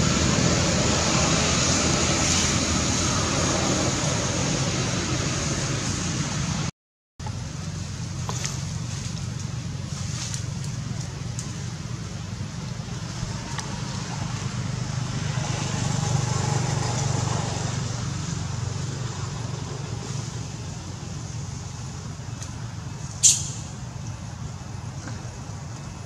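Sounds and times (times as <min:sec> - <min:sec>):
road traffic rumble: 0:00.0 - 0:26.0
sharp click: 0:23.2 - 0:23.7.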